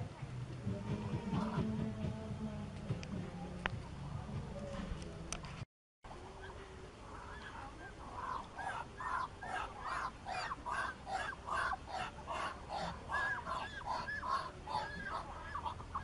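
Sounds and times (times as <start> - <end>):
ducks calling: 6.3 - 16.0.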